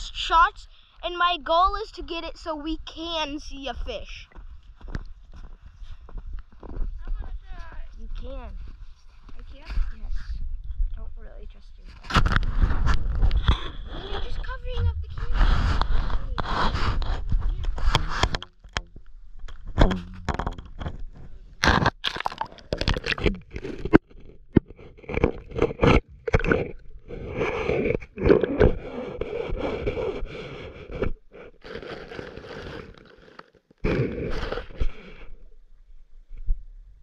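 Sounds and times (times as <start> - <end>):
camera case scraping on ice: 22.7 - 35.2.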